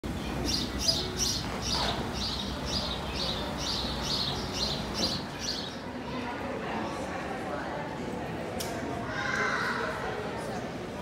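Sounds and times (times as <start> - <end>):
bird chirping: 0.4 - 5.8.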